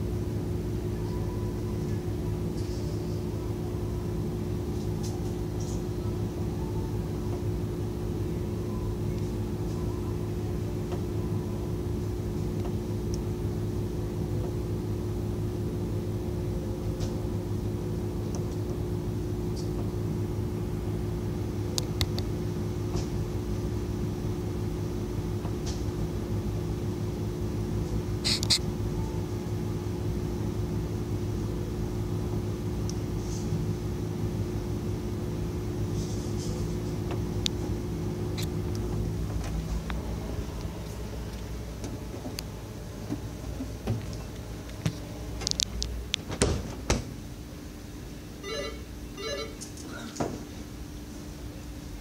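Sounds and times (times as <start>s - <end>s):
low machine hum: 0.0s - 52.0s.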